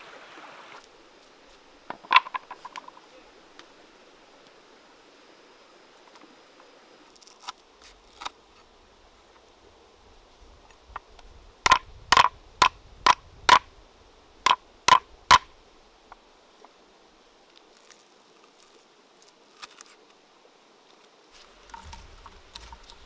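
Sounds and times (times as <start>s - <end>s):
cleaver smacking on wooden block: 11.7s - 13.7s, 14.5s - 15.5s.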